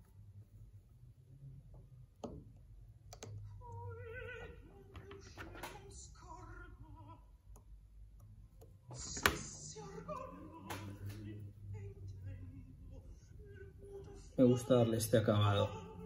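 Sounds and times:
operatic singing with vibrato: 3.6 - 7.4, 9.0 - 16.0.

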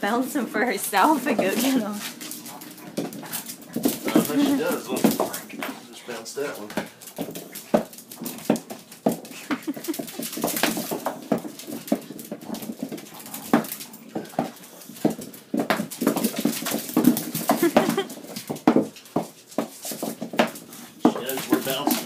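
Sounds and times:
balls bouncing on hard floor: 0.0 - 5.8, 6.4 - 22.0
dog claws clicking on floor: 1.0 - 22.0
dogs vocalizing: 1.3 - 6.3, 6.9 - 18.5.

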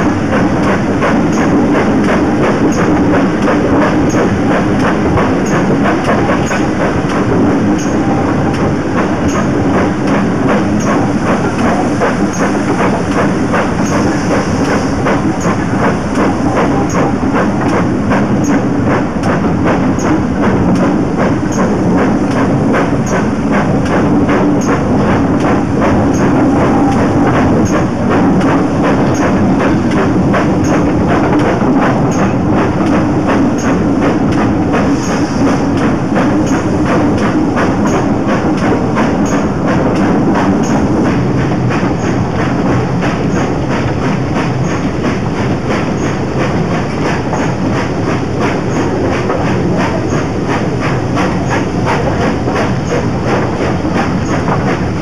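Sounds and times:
clickety-clack over rail joints: 0.0 - 55.0
train wheels rumbling on rails: 0.0 - 55.0.

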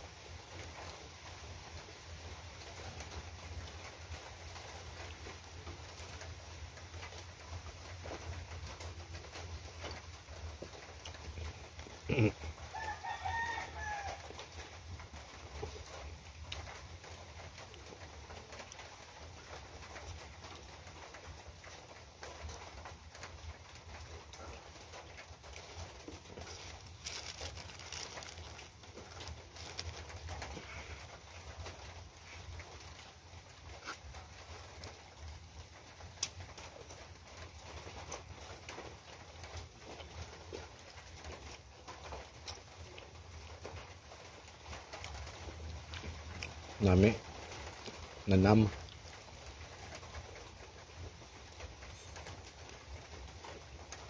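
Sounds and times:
person swallowing drink: 11.3 - 12.4
paper rustling: 26.2 - 30.9
chewing with wet mouth clicks: 44.9 - 46.7.

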